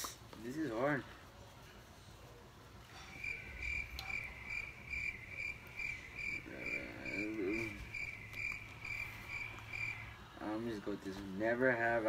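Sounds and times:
cricket chirping: 3.0s - 10.2s.

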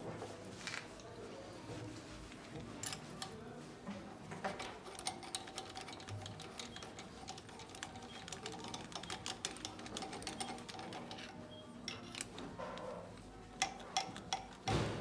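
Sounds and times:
metallic clicks and taps: 13.6s - 14.9s.

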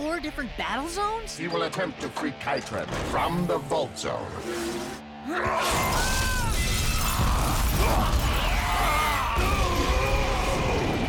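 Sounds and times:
dramatic background music: 0.0s - 11.0s
structure smashing and shattering: 5.6s - 11.0s.

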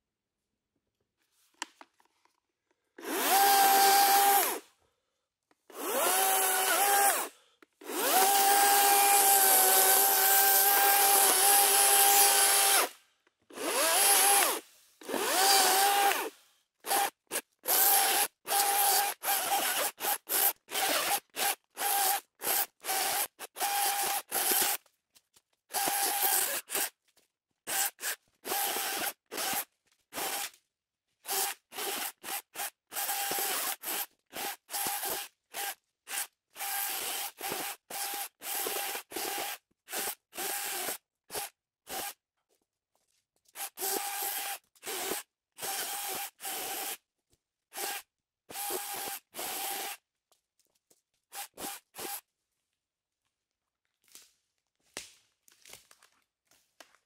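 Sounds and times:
chainsaw motor whining: 13.5s - 16.3s.

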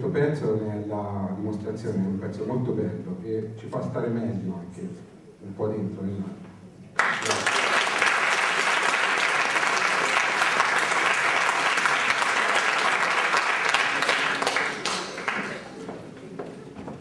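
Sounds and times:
audience applauding: 7.0s - 16.0s.

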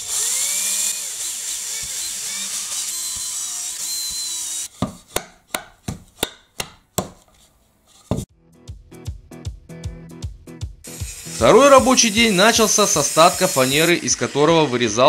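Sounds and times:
cordless drill boring: 0.0s - 4.7s, 10.9s - 15.0s
sharp evenly spaced knocks: 4.1s - 7.3s.

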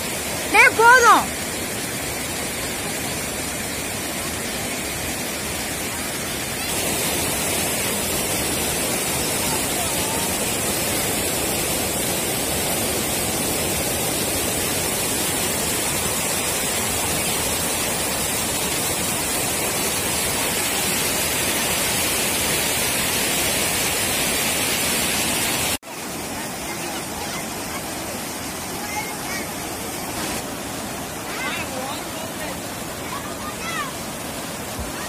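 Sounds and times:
water rushing over weir: 0.0s - 35.0s.

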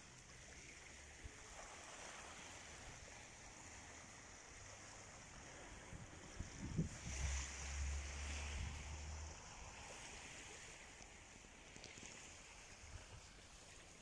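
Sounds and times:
small waves lapping on sand: 0.0s - 14.0s.

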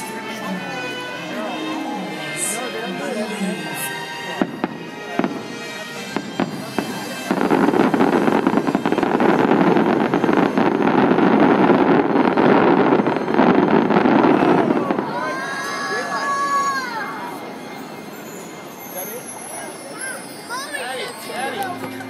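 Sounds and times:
firework bangs: 4.3s - 16.4s
dense firework crackling: 4.3s - 16.6s.

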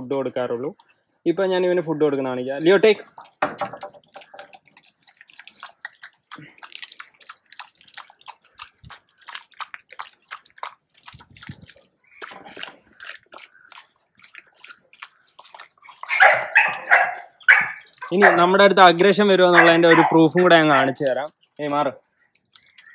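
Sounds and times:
dog lapping and chewing from bowl: 2.6s - 21.4s.

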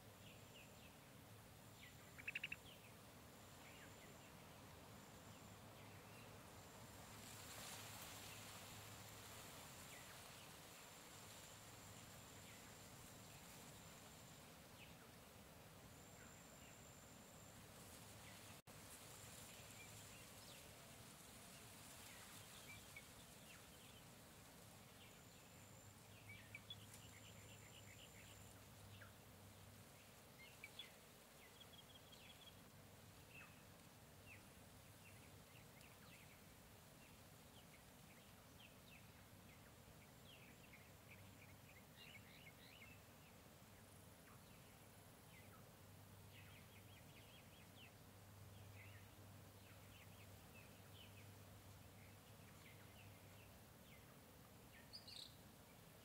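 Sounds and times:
steady background hiss: 0.0s - 56.0s
bird chirps: 1.8s - 2.9s.

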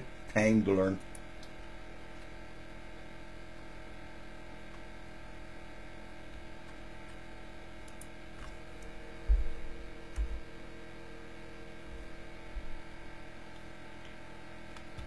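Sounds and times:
steady low hum: 0.0s - 15.0s
dull low thumps: 9.2s - 10.5s, 11.9s - 12.8s.

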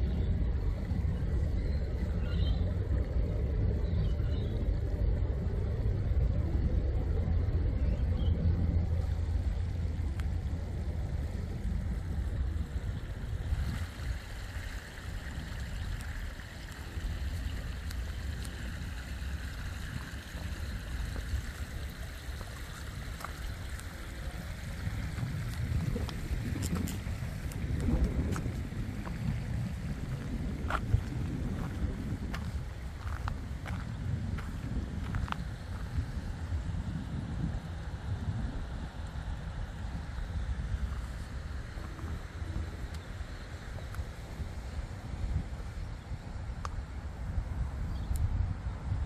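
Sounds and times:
low rumble: 0.0s - 49.0s
faint bird chirps: 1.2s - 2.8s, 3.8s - 4.7s, 7.7s - 8.5s.

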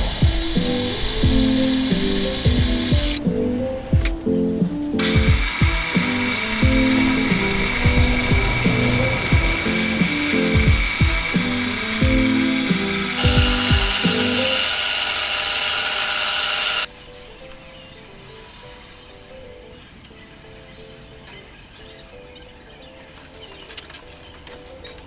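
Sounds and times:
electronic music with a beat: 0.0s - 14.6s
lathe whining: 5.0s - 16.9s.

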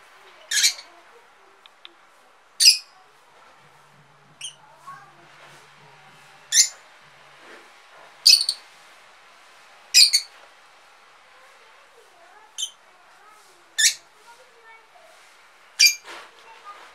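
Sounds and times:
faint bird chirping: 0.4s - 3.1s, 4.4s - 5.1s, 6.5s - 6.8s, 8.2s - 8.7s, 9.9s - 10.4s, 12.4s - 13.0s, 13.6s - 14.3s, 15.8s - 16.0s.

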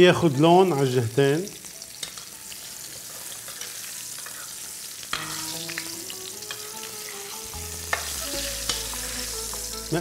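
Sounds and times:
fish sizzling in hot oil: 0.0s - 10.0s
metal spoons clicking on pan: 2.0s - 2.4s.

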